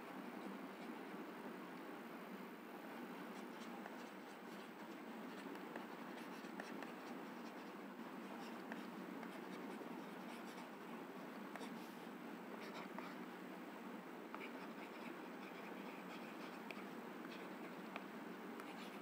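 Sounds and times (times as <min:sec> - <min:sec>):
low room hiss: 0:00.0 - 0:19.0
stylus scratching on pen tablet: 0:03.3 - 0:11.8, 0:12.6 - 0:13.2, 0:14.4 - 0:18.0, 0:18.6 - 0:19.0.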